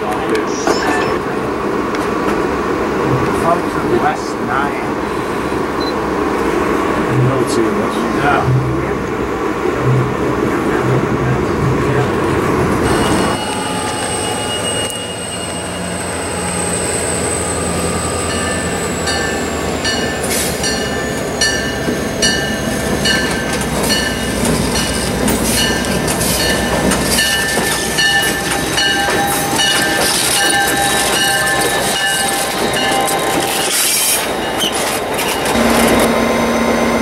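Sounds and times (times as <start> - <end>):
diesel locomotive engine droning: 0.0 - 37.0
high squeal: 12.8 - 22.8, 27.4 - 37.0
locomotive bell ringing: 12.8 - 37.0.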